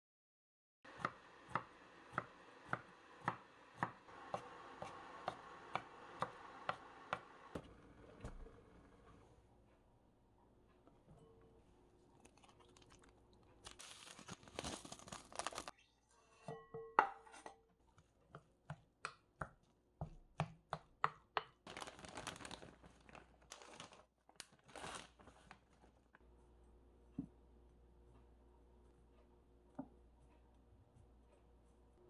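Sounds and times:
plastic sachet crinkling and tearing: 12.2s - 15.7s, 21.6s - 25.8s.

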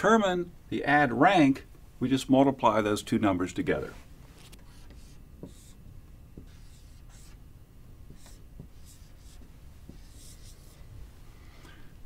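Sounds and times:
marker scratching on whiteboard: 4.4s - 5.8s, 6.4s - 7.4s, 8.1s - 10.8s.

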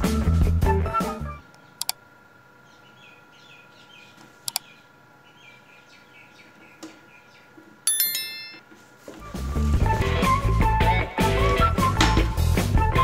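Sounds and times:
music: 0.0s - 1.4s, 9.2s - 13.0s
birds chirping faintly: 1.5s - 8.6s
bright bell ding: 7.9s - 8.6s.

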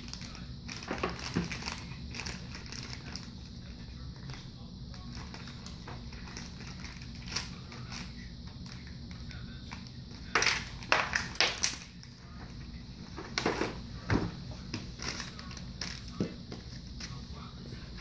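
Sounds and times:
plastic packaging crinkling: 0.0s - 3.4s, 4.9s - 8.9s
low steady hum: 0.0s - 18.0s.

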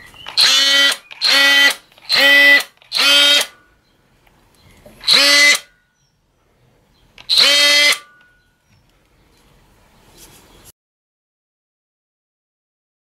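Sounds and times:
oscillating multi-tool motor hum: 0.3s - 3.6s, 5.0s - 5.7s, 7.3s - 8.2s.

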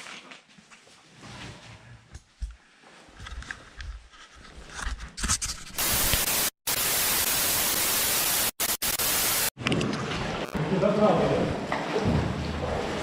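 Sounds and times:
tv static hiss: 5.8s - 9.5s.

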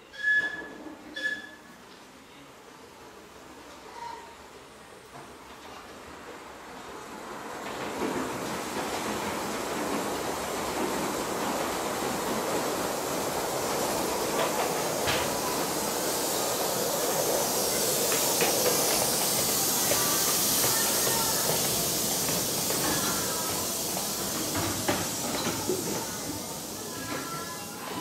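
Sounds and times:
miniature steam locomotive hissing: 6.6s - 28.0s
wheels clicking on track: 7.5s - 28.0s.

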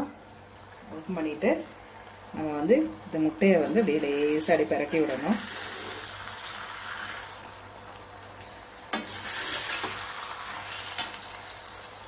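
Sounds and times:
food sizzling in a pan: 0.0s - 12.0s
spoon scraping a pan: 8.9s - 11.2s.

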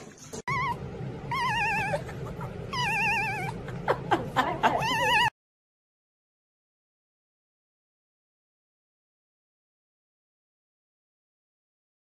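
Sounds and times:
low steady hum: 0.0s - 5.3s
kitten meowing: 0.5s - 3.7s.

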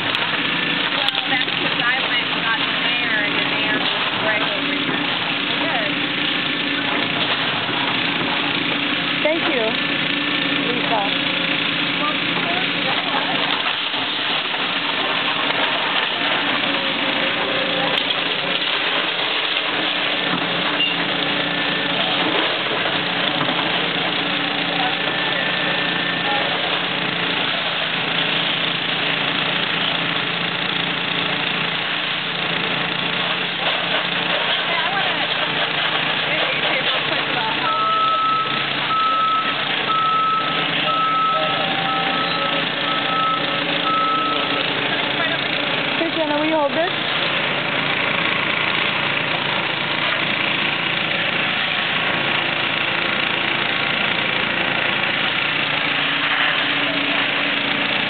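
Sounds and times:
diesel engine running: 0.0s - 58.0s
water spraying from hose: 0.0s - 58.0s
back-up alarm beeping: 37.6s - 44.6s.

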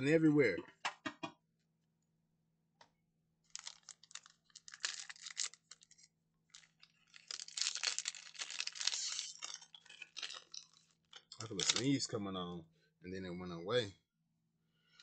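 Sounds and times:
wrapper tearing and crinkling: 3.5s - 11.9s.

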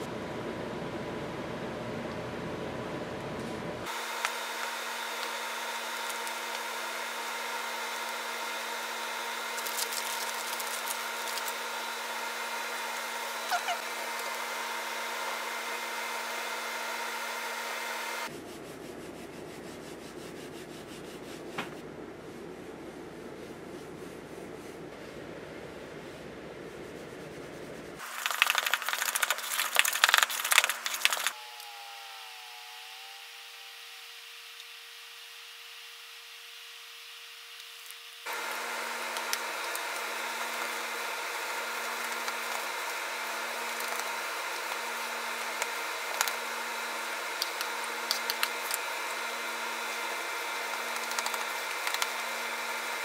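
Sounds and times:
steady appliance hum and drone: 0.0s - 53.0s
paper towel rubbing icing: 4.4s - 14.6s, 18.3s - 31.4s, 38.3s - 53.0s.

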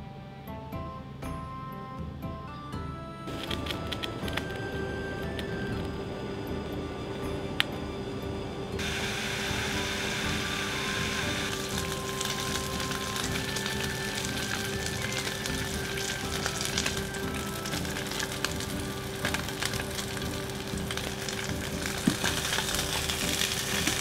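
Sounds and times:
meat sizzling in a frying pan: 8.8s - 24.0s.

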